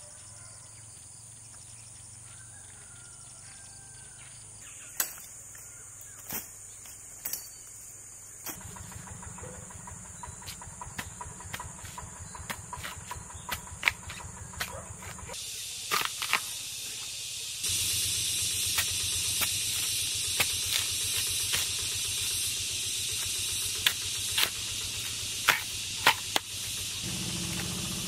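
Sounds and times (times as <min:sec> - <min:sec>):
machete chopping bamboo: 0:08.4 - 0:09.0, 0:10.4 - 0:17.1, 0:17.7 - 0:27.8
steady hiss: 0:15.3 - 0:28.0.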